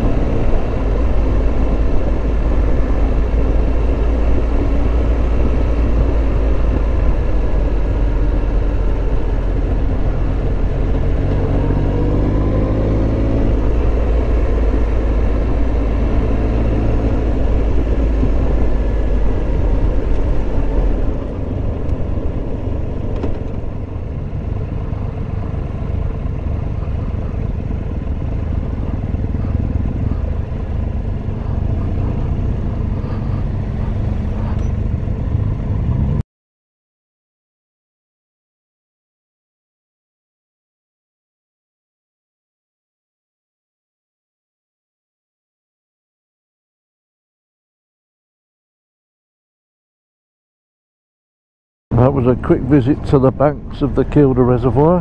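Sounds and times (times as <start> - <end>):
motorcycle engine rumbling: 0.0 - 36.2, 51.9 - 55.0.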